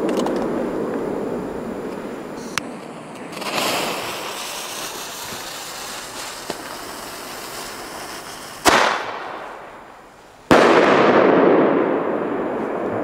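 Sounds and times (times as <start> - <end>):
firecracker fuse hissing: 1.8 - 10.5
loud firecracker bang: 8.0 - 9.7, 10.5 - 13.0.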